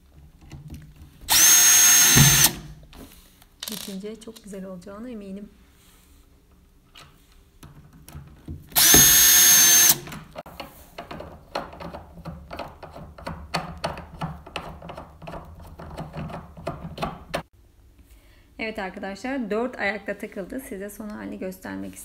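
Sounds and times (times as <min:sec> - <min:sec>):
electric hand drill whining: 0:01.3 - 0:02.8, 0:08.8 - 0:10.1.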